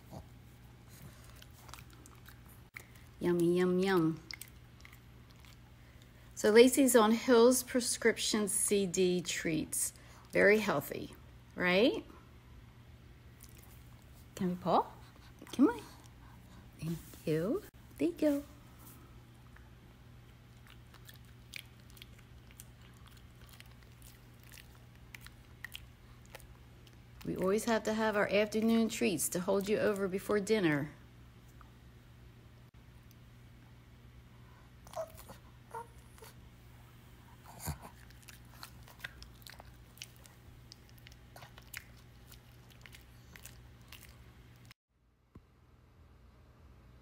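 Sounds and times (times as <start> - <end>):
dog chewing crunchy treat: 0.9 - 3.2, 19.5 - 27.4, 37.4 - 44.7
dog chewing treat crunches: 37.5 - 44.7.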